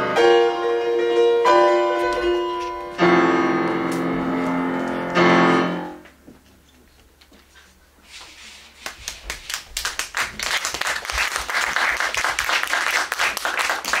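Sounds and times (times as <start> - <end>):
soft rustle: 6.4 - 9.3
audience applauding: 8.8 - 14.0.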